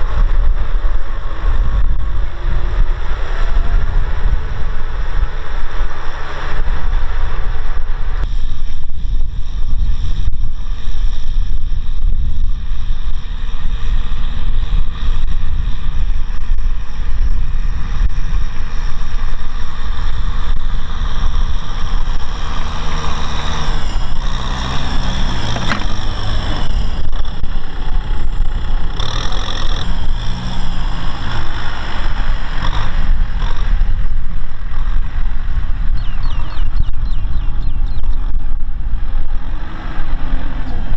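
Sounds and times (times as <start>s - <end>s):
tractor diesel engine under load: 0.0s - 36.9s.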